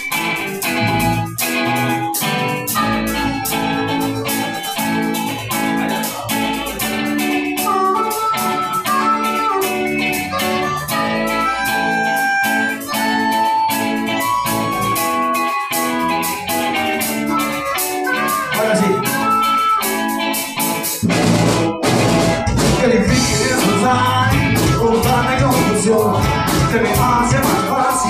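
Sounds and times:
drum beat: 0:00.0 - 0:28.0
electric guitars: 0:00.0 - 0:28.0.

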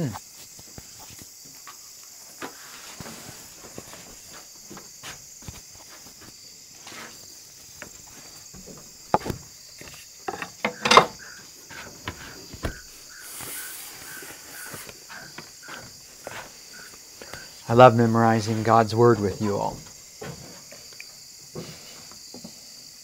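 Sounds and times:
crickets and insects chirping: 0:00.0 - 0:23.0
clicks and knocks: 0:10.3 - 0:11.2.

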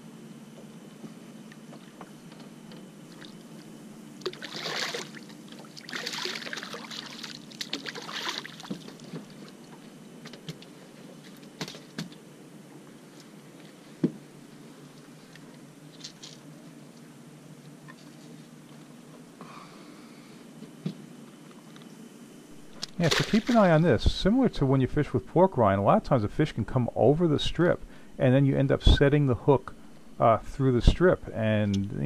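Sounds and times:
water splashing: 0:04.2 - 0:09.4, 0:22.6 - 0:27.2
fish thumping on boat deck: 0:22.7 - 0:23.7.

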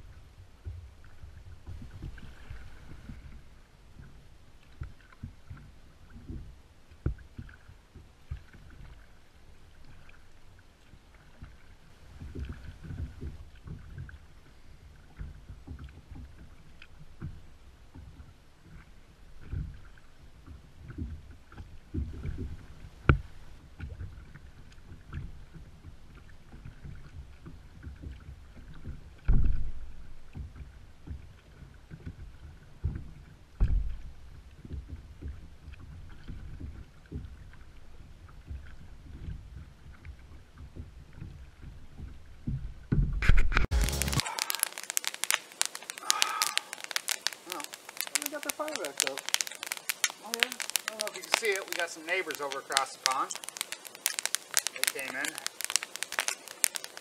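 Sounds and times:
waves slapping against kayak hull: 0:00.0 - 0:57.0.

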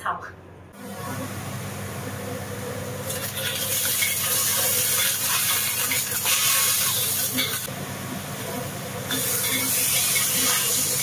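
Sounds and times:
vegetables sizzling in oil: 0:00.8 - 0:11.0
metal ladle scraping a wok: 0:03.3 - 0:07.7, 0:09.1 - 0:11.0.

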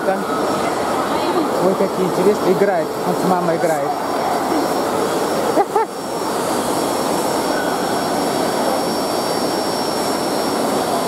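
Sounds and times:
blow dryers roaring: 0:00.0 - 0:11.0
thin steady whine: 0:00.0 - 0:11.0
short high whine-like call: 0:07.4 - 0:08.4.

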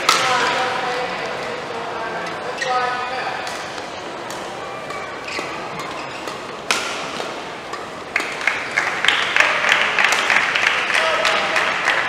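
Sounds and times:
racket hitting shuttlecock: 0:00.0 - 0:00.6, 0:03.4 - 0:10.5
people clapping: 0:08.1 - 0:12.0.

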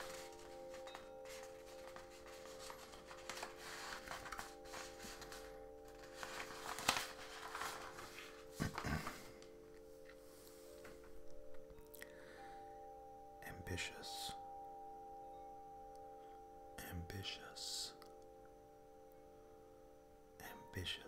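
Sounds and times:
close-up rustling and handling: 0:00.0 - 0:11.9
ambient music drone: 0:00.0 - 0:21.0.

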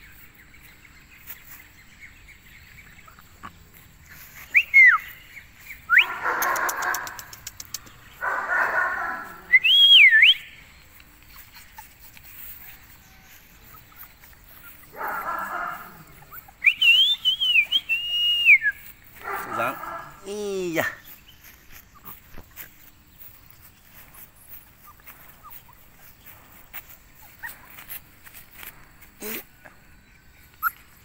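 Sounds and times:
person whistling: 0:04.5 - 0:05.0, 0:09.5 - 0:10.4, 0:16.6 - 0:18.8.

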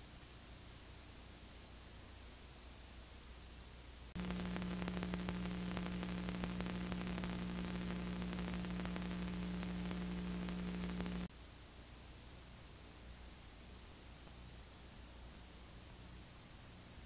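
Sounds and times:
faint hiss: 0:00.0 - 0:17.0
steady electrical buzz: 0:04.0 - 0:11.3.

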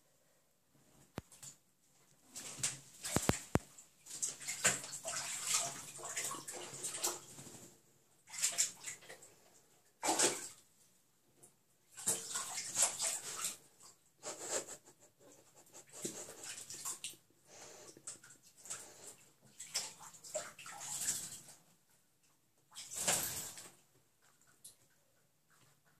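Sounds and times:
animal splashing in bathtub water: 0:02.4 - 0:09.3, 0:09.9 - 0:10.6, 0:11.9 - 0:14.6, 0:15.7 - 0:17.2, 0:17.9 - 0:21.7, 0:22.7 - 0:25.6.

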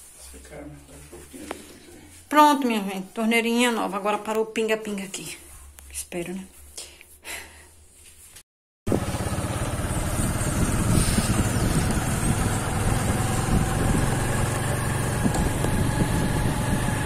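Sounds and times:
motorcycle engine running: 0:08.9 - 0:17.0.

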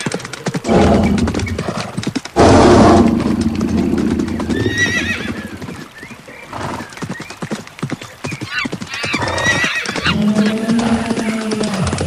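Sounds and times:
horse hooves clip-clopping: 0:00.0 - 0:12.0
horse whinny: 0:03.7 - 0:05.6, 0:08.5 - 0:11.8.

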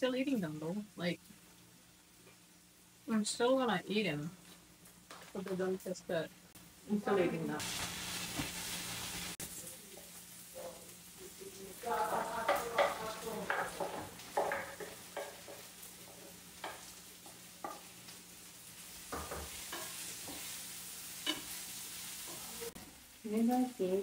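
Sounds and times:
vegetables sizzling in a pan: 0:00.0 - 0:24.0
spatula knocking against pan: 0:12.1 - 0:15.7, 0:19.1 - 0:20.4.

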